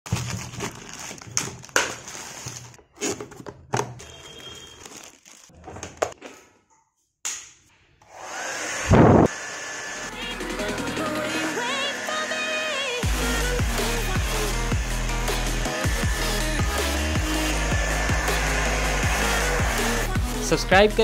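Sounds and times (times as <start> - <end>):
packaging rustling: 0.1 - 6.1
hair dryer blowing: 8.0 - 21.0.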